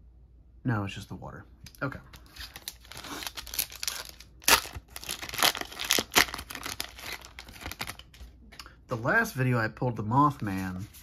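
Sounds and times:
foil wrapper tearing and crinkling: 2.2 - 8.2.

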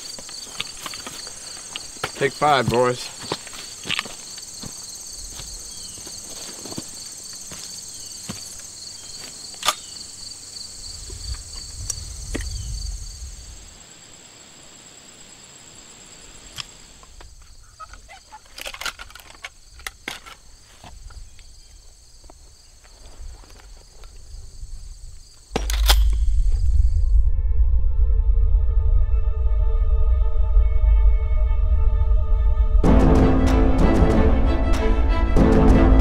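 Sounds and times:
insects chirring: 0.0 - 27.3.

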